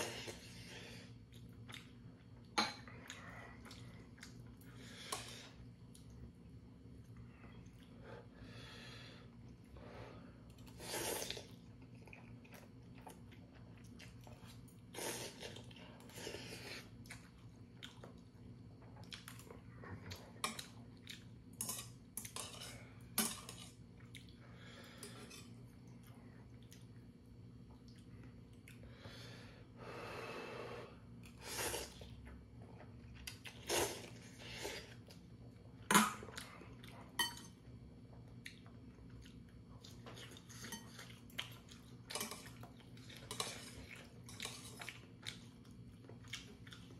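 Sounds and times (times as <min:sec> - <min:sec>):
chewing: 0:01.2 - 0:05.3, 0:10.5 - 0:22.8, 0:38.1 - 0:46.9.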